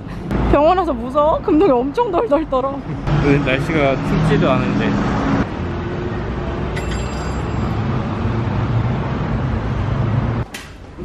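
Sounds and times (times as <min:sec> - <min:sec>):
city street traffic: 0:00.0 - 0:11.0
vehicle engine rumbling: 0:00.0 - 0:11.0.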